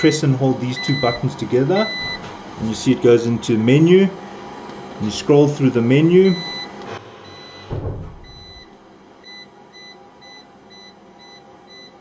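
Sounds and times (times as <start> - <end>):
low thump: 7.7 - 8.6.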